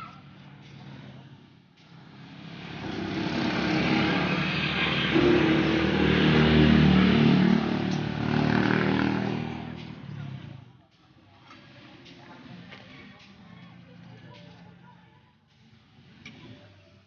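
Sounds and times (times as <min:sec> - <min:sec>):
vehicle engine passing by: 0:00.0 - 0:10.8.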